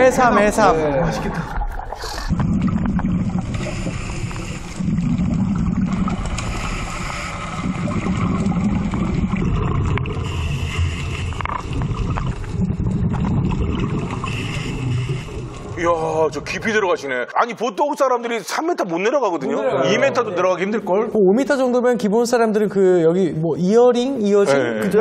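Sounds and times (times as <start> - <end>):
muffled underwater rushing: 0.0 - 17.2
underwater gurgling: 0.0 - 17.2.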